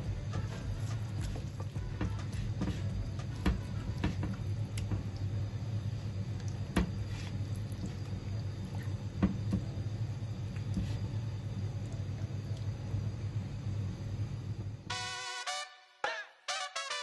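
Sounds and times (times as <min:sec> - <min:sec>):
steady low hum: 0:00.0 - 0:15.2
hand squishing meat in marinade: 0:00.7 - 0:01.8.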